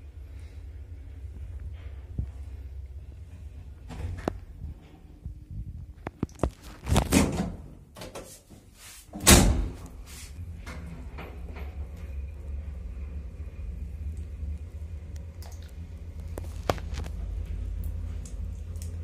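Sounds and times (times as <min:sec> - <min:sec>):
lift door thud: 0:09.2 - 0:09.8.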